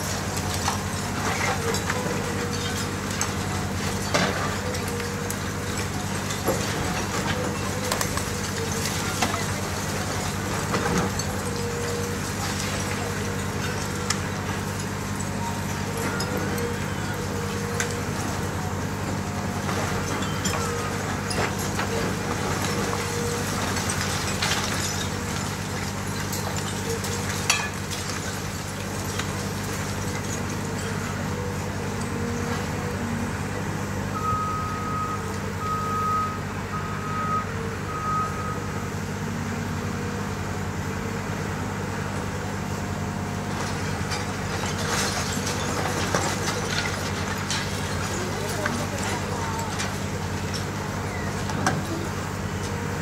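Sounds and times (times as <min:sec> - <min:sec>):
falling debris: 0:00.0 - 0:33.0, 0:43.4 - 0:52.7
excavator diesel engine running: 0:00.0 - 0:53.0
concrete breaking: 0:43.6 - 0:51.9.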